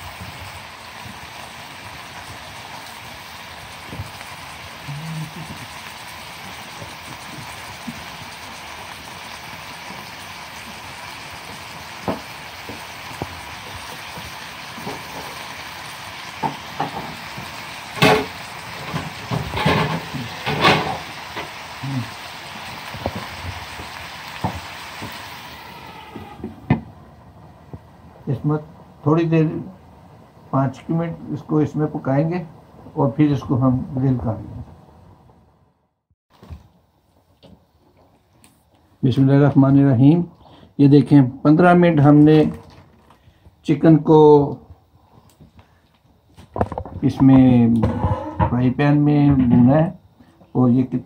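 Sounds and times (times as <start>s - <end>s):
chicken sizzling in oil: 0.0s - 34.5s.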